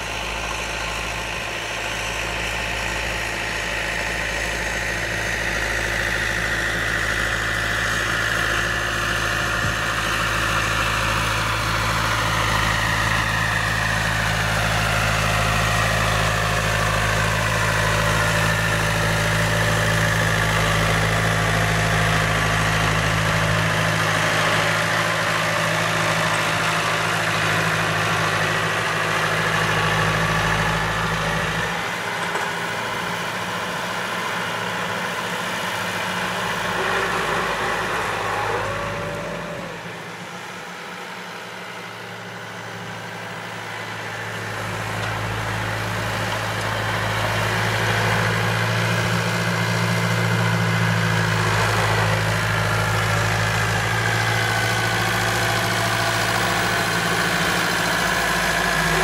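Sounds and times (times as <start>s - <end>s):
tractor diesel engine under load: 0.0s - 59.0s.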